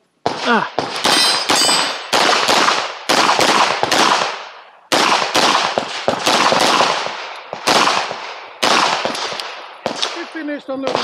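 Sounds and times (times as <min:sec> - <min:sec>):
pistol shots: 0:00.2 - 0:11.0.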